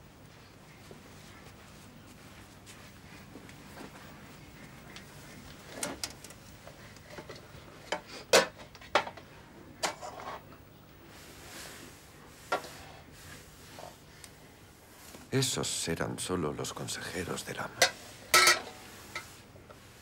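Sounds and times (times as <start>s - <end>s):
plates and bowls clinking: 17.8s - 19.3s.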